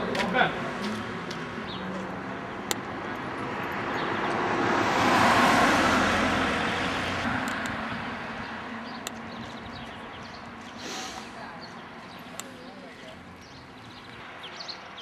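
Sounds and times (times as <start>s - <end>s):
car passing by: 3.2s - 8.8s.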